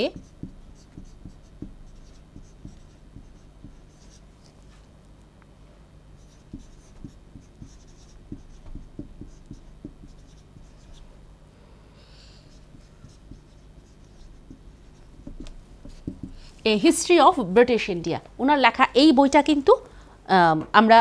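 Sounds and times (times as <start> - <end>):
marker pen writing on whiteboard: 0.0 - 4.8, 6.2 - 11.1, 12.5 - 16.5
low room hum: 0.0 - 21.0.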